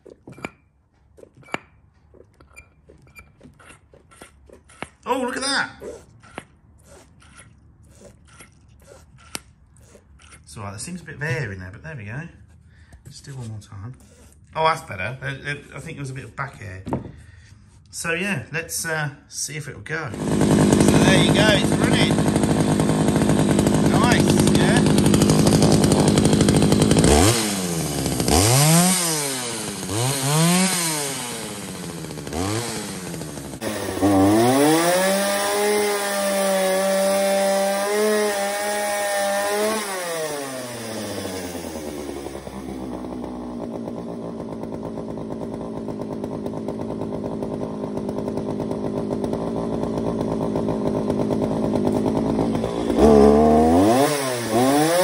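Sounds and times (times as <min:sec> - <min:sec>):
chainsaw revving and idling: 0:04.0 - 0:12.0, 0:20.0 - 0:55.0.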